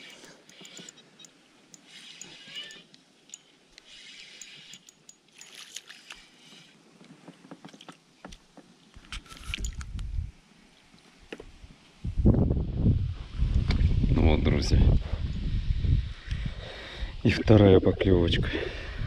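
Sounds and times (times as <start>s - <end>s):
small clicks: 0.0s - 6.7s
water sloshing: 1.8s - 9.8s
low rumble on microphone: 12.0s - 16.7s.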